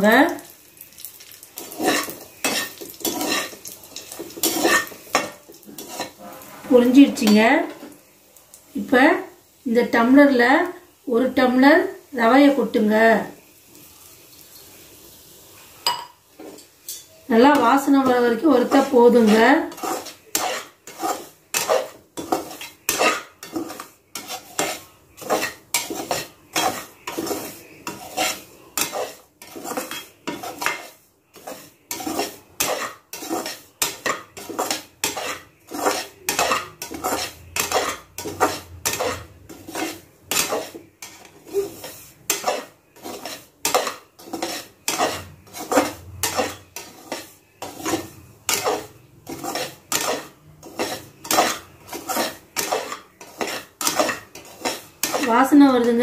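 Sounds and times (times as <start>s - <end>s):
spoon scraping a metal pan: 1.2s - 8.0s, 15.8s - 56.0s.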